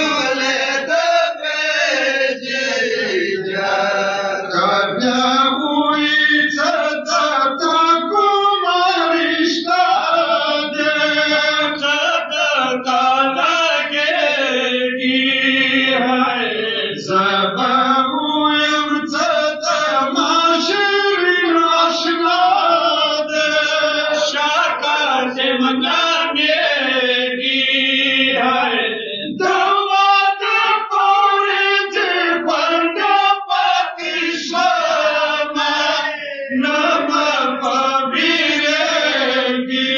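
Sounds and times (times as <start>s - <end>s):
men chanting a lament: 0.0s - 39.9s.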